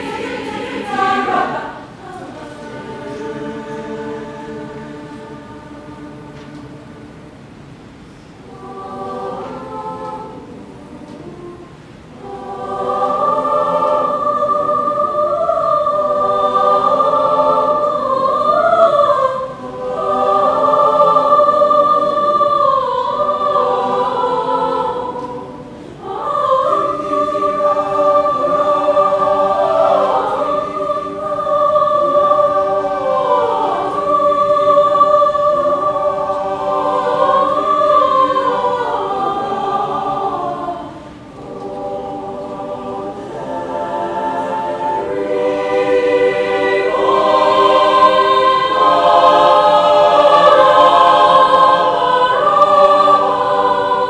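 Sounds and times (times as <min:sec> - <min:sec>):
choir singing a cappella: 0:00.0 - 0:54.0.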